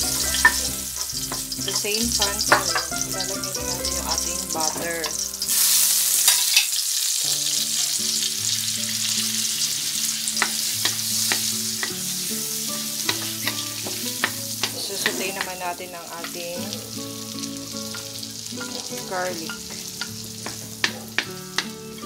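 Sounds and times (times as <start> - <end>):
wooden spatula tapping pan: 0.0 - 5.2, 10.4 - 12.0, 13.0 - 16.6, 17.8 - 22.0
butter sizzling in a wok: 0.0 - 22.0.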